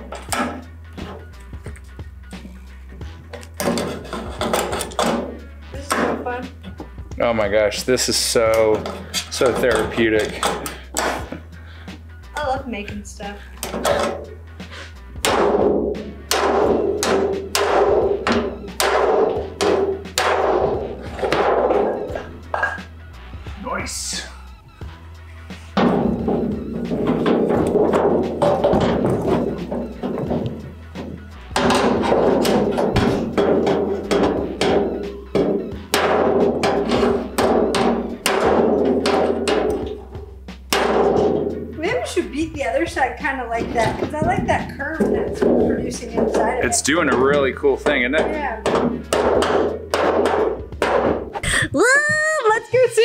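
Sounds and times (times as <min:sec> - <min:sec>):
hammer striking copper sink: 0:03.6 - 0:05.3, 0:15.2 - 0:22.9, 0:25.7 - 0:42.2, 0:42.8 - 0:51.4.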